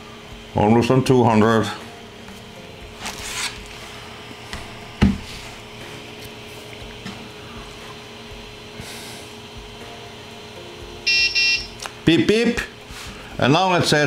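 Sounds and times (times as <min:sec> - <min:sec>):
printer cooling fans humming: 0:00.0 - 0:14.0
dull thump: 0:04.6 - 0:05.3.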